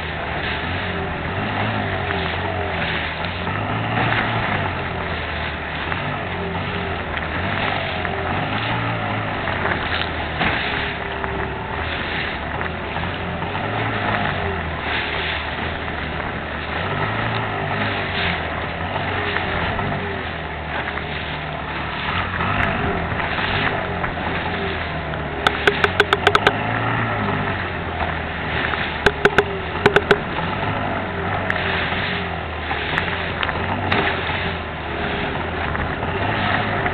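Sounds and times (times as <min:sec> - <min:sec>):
outboard motor droning: 0:00.0 - 0:36.9
sharp knocks: 0:25.5 - 0:26.6, 0:29.1 - 0:30.3.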